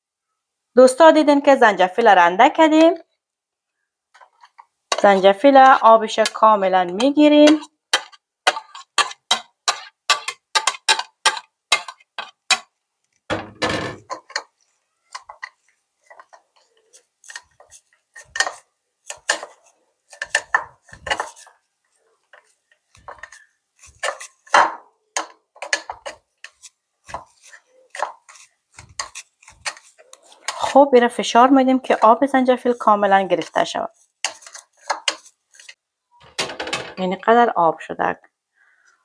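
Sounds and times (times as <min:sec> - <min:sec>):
spoon scraping ginger on a strainer: 0:04.2 - 0:12.8, 0:14.0 - 0:35.8.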